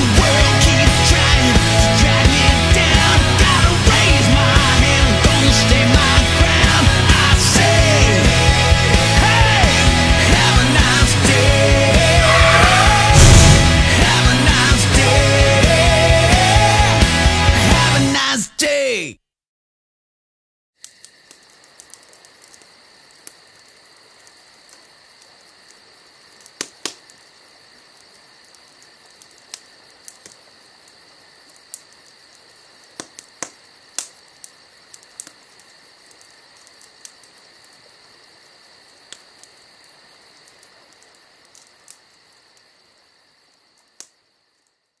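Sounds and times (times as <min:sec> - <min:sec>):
crickets chirping: 0:10.5 - 0:14.8, 0:20.8 - 0:45.0.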